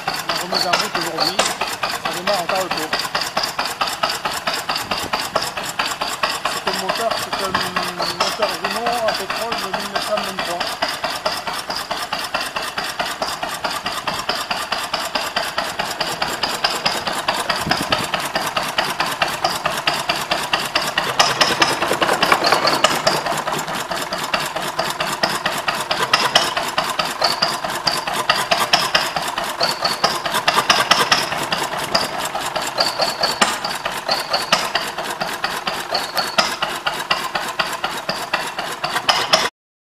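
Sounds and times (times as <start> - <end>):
stationary petrol engine running: 0.0 - 39.5.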